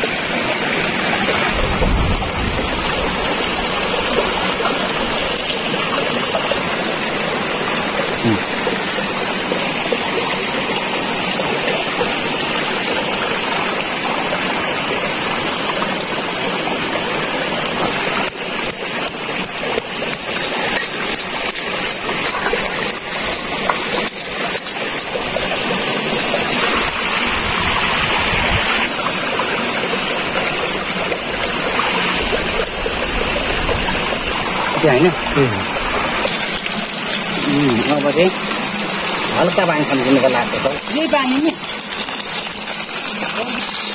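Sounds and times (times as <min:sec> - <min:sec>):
stream rushing: 0:00.0 - 0:43.9
stone grinding and scraping: 0:05.4 - 0:06.8, 0:20.1 - 0:27.3.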